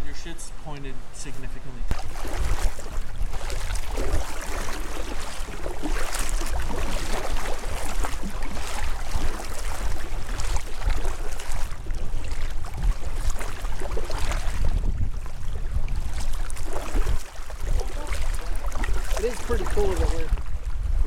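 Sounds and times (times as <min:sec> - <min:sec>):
wind rumble on microphone: 0:00.0 - 0:21.0
paddle splashing water: 0:01.9 - 0:21.0.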